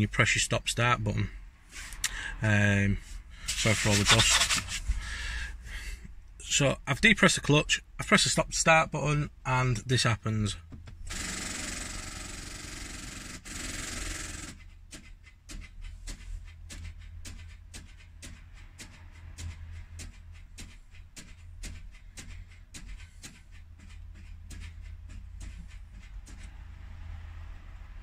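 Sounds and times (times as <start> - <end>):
rapid irregular clicking: 3.4 - 5.0, 10.6 - 28.0.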